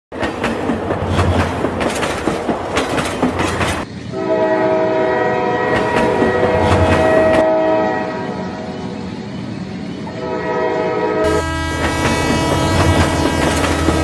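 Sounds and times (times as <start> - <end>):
train wheels clicking on rails: 0.1 - 4.2, 5.6 - 7.5, 11.2 - 14.0
train horn blast: 4.1 - 8.8, 10.0 - 14.0.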